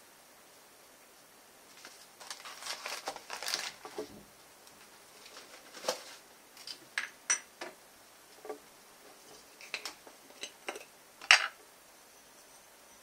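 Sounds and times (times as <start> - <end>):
kitchen containers clinking: 9.6 - 11.6
glass bottle set on counter: 10.7 - 11.6.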